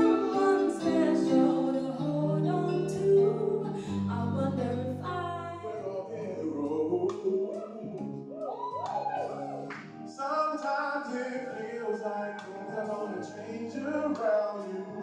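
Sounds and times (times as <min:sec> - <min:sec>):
electric guitar: 0:00.0 - 0:05.6
woman singing: 0:00.0 - 0:05.8.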